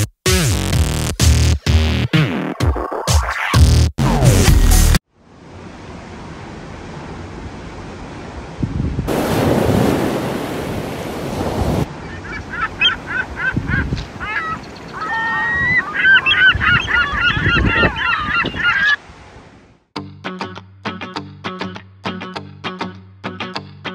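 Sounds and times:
wind: 5.0s - 19.9s
surf: 5.8s - 19.6s
birds honking: 11.9s - 19.0s
music with plucked notes: 20.0s - 23.9s.

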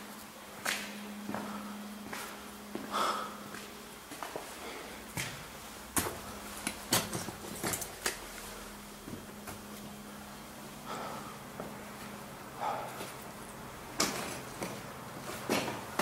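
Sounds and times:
faint steady hum: 0.0s - 16.0s
knocks and clicks of footsteps: 5.1s - 8.2s.

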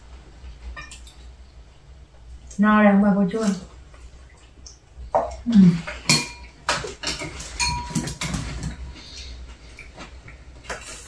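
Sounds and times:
chopsticks and tableware clinking: 6.1s - 8.5s.

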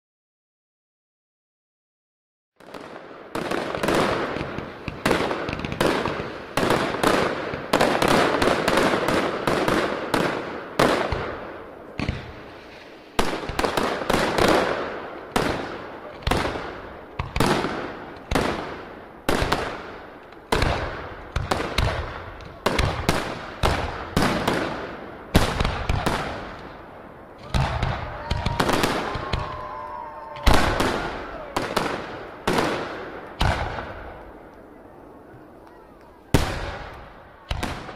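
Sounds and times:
crackling echo: 2.6s - 37.9s.

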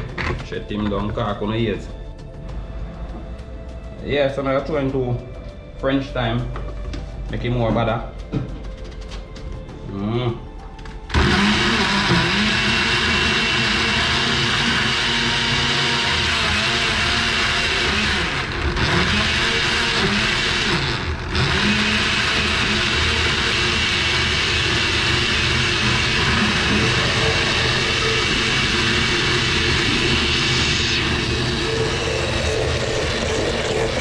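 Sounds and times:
electric blender whirring: 11.1s - 34.0s.

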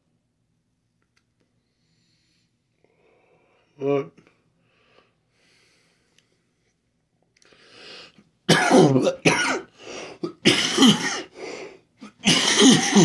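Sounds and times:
man breathing: 1.6s - 3.8s, 4.5s - 6.6s, 7.4s - 8.2s, 9.7s - 10.3s, 11.2s - 11.9s
man coughing: 8.5s - 11.4s, 12.0s - 13.0s.

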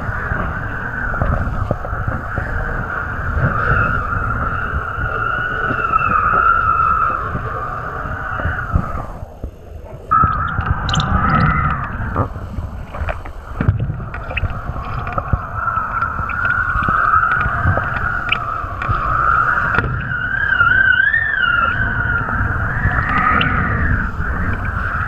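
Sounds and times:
kiteboard planing across water: 0.0s - 25.0s
wind rushing over microphone: 0.0s - 25.0s
whistling tone: 10.1s - 12.1s, 15.4s - 25.0s.

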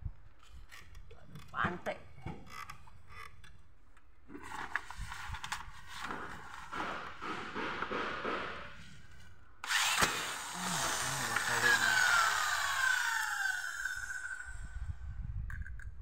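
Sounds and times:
electric drill drilling into metal: 9.6s - 14.9s.

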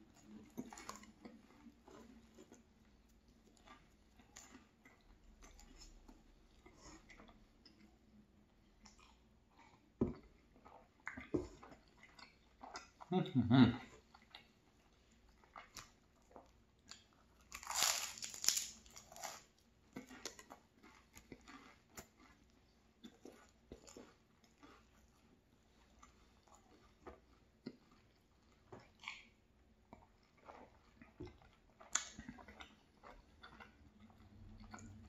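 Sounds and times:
chewing with small crackles: 0.0s - 35.0s
crackly pastry bite: 15.4s - 25.3s, 29.9s - 34.0s.

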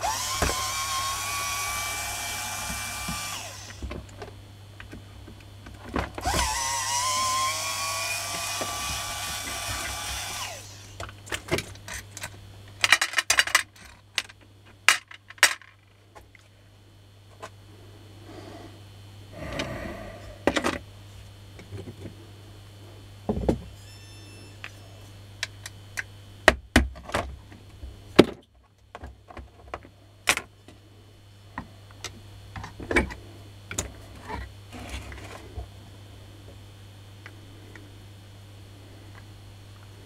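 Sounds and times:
parts and tools clicking and knocking: 11.0s - 16.4s.

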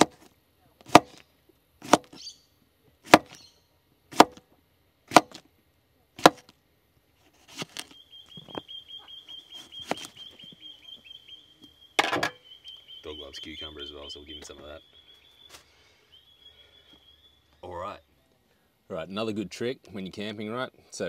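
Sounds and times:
knife slicing cucumber on board: 1.8s - 2.2s, 6.2s - 6.5s.

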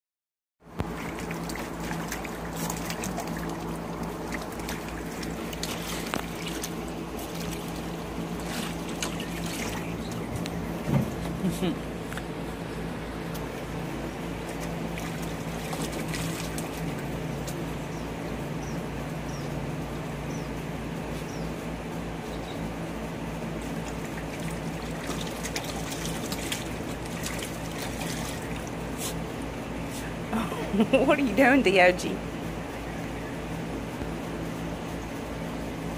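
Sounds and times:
steady low hum: 0.6s - 35.9s
water splashing in a pool: 0.7s - 10.3s, 14.3s - 17.7s, 23.6s - 29.3s.

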